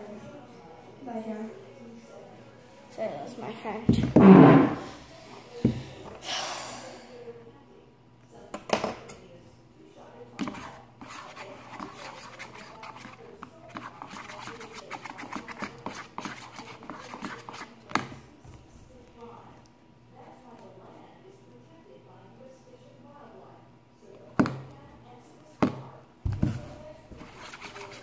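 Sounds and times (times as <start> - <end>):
spoon scraping slime in plastic bowl: 10.4 - 18.2, 26.4 - 28.0.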